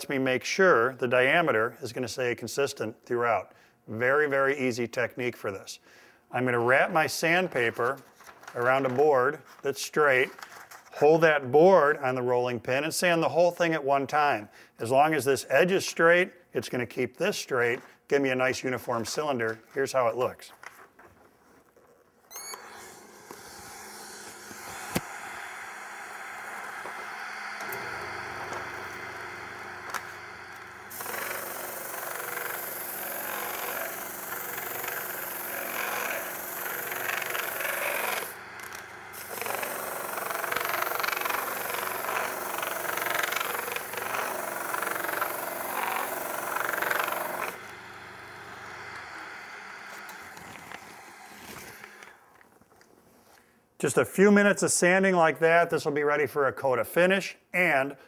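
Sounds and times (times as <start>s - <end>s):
wood lathe humming: 22.5s - 52.3s
sandpaper rubbing on spinning wood: 30.9s - 38.4s, 39.2s - 47.6s.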